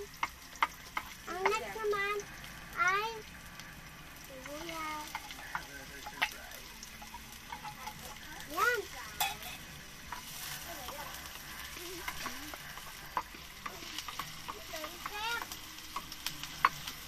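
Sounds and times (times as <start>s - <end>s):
garlic and onion sizzling in oil: 0.0s - 17.0s
spoon scraping a pan: 4.4s - 17.0s.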